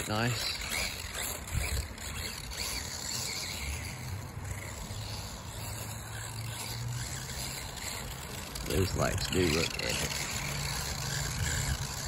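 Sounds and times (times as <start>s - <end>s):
rc truck motor humming: 0.0s - 12.0s.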